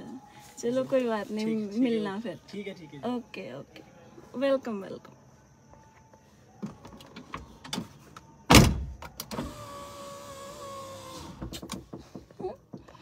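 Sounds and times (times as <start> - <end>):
power window motor whine: 9.1 - 11.6.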